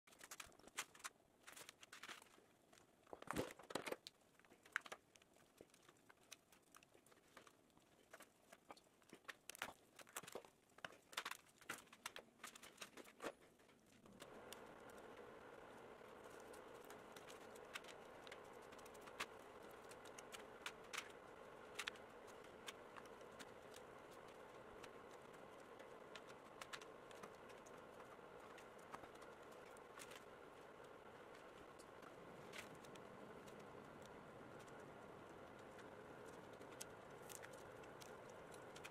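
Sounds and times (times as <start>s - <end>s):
rustling and tearing of hide: 0.1s - 15.0s
small clicks: 0.1s - 38.9s
low hum: 14.0s - 38.9s.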